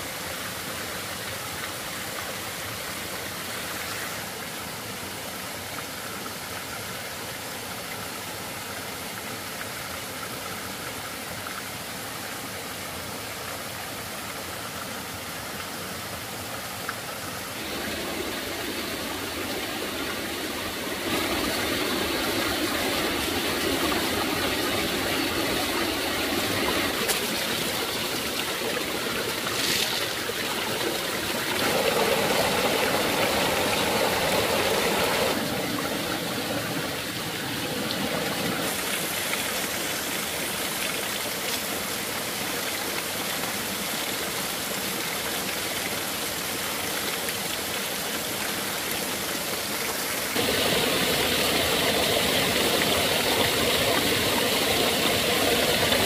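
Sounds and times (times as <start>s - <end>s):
stream splashing over rocks: 0.0s - 56.0s.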